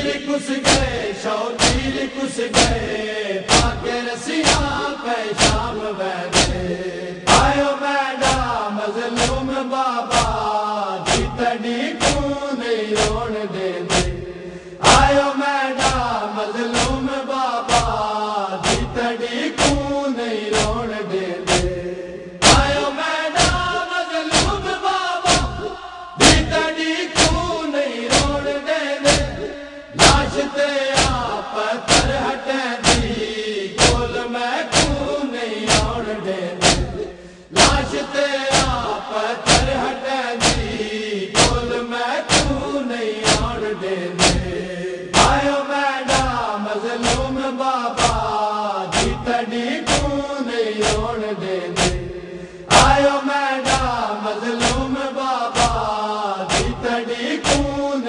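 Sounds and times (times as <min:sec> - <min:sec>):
men chanting a lament: 0:00.0 - 0:58.0
hand slaps on chest: 0:11.1 - 0:11.3, 0:56.5 - 0:56.8
chest-beating strokes: 0:21.5 - 0:26.6, 0:27.2 - 0:36.0.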